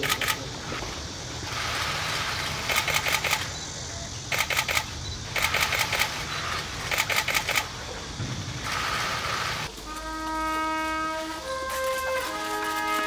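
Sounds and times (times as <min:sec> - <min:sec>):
camera shutters clicking: 0:00.0 - 0:00.4, 0:02.6 - 0:03.5, 0:04.3 - 0:06.2, 0:06.9 - 0:07.7.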